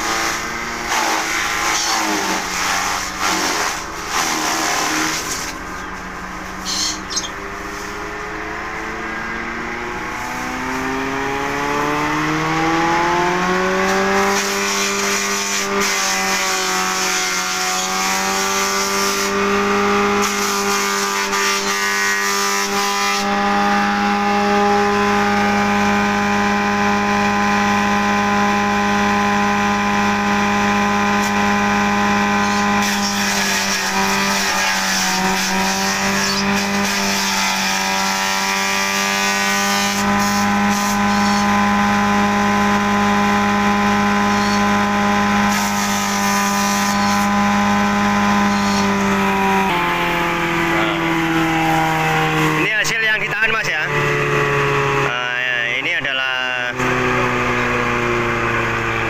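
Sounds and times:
electric grass chopper humming: 0.0s - 59.0s.

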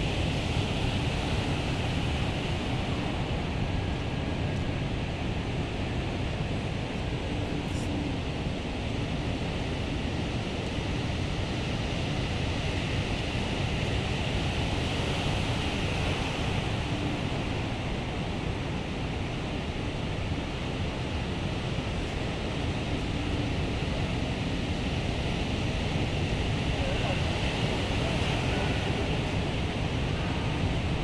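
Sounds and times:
wind rumble on microphone: 0.0s - 31.0s
ocean surf breaking: 26.1s - 31.0s.

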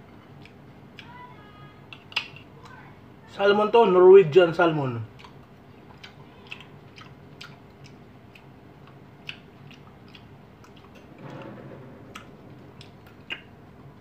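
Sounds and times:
soft chewing: 0.0s - 3.0s, 5.0s - 11.2s, 12.1s - 14.0s
rustly noise: 11.0s - 13.3s.

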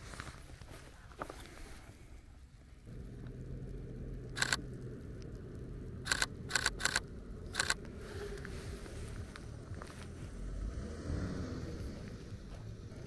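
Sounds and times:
low steady rumble: 0.0s - 13.0s
camera shutter firing: 4.4s - 4.6s, 6.1s - 7.0s, 7.6s - 7.8s.

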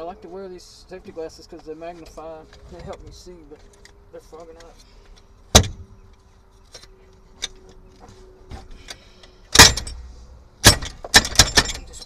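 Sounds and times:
loud metallic clanks: 9.5s - 12.0s.

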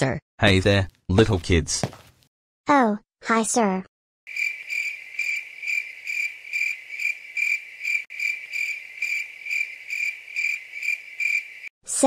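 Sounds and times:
cricket chirping: 4.3s - 11.7s.

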